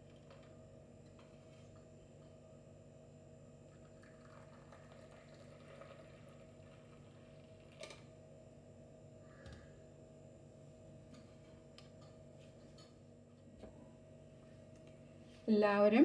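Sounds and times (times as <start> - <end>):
coffee pouring into cup: 3.7 - 8.1.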